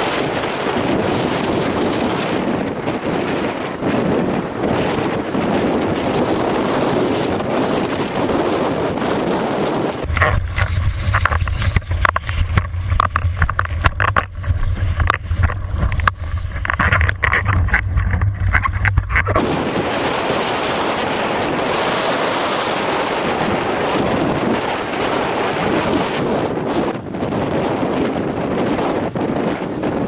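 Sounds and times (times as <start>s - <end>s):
wind buffeting camera: 0.0s - 30.0s
deep rumble: 9.9s - 21.7s
water spray knocks and slaps: 10.1s - 19.4s.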